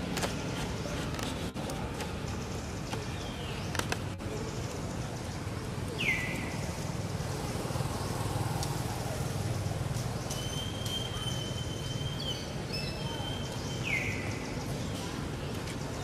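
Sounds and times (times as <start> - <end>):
low outdoor rumble: 3.9 - 12.1.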